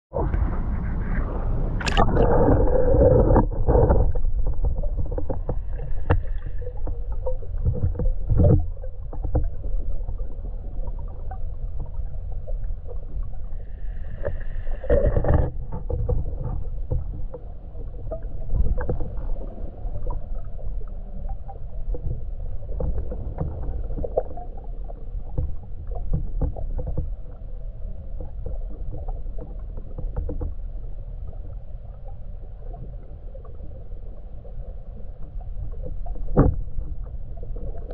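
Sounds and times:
underwater low rumble: 0.1s - 37.9s
clicks and crackles: 0.3s - 10.3s.

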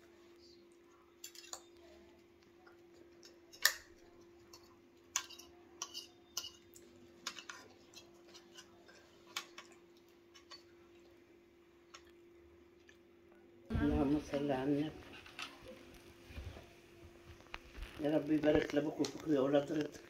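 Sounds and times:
faint steady hum: 0.0s - 20.0s
forks clinking on plates: 1.2s - 1.8s, 3.2s - 10.7s.

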